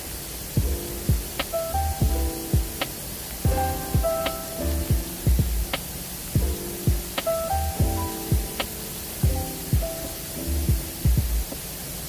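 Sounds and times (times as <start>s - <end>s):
faint rain hiss: 0.0s - 12.0s
electronic music with kick drum: 0.6s - 5.8s, 6.4s - 11.6s.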